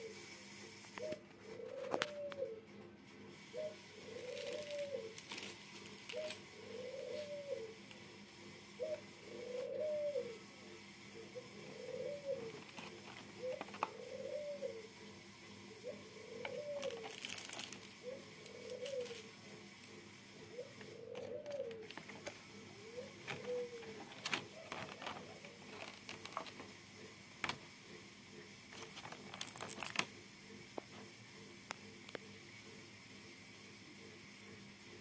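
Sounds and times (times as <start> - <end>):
dove cooing: 0.0 - 30.1
plastic lid clicking and crinkling: 12.5 - 14.0, 20.8 - 22.4, 23.0 - 26.7, 27.4 - 27.6, 28.7 - 30.1.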